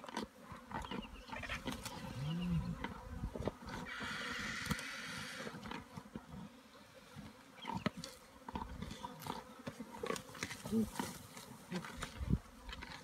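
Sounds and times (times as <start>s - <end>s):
vultures hiss-screeching: 3.8s - 5.6s
cracking and tearing of feeding: 7.7s - 13.0s.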